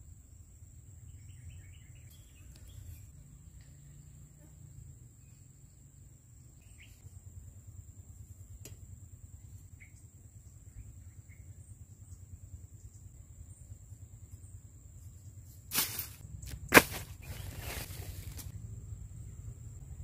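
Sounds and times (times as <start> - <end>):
high insect drone: 0.0 - 20.0
low steady rumble: 0.0 - 20.0
plastic packaging rustling: 16.8 - 18.5.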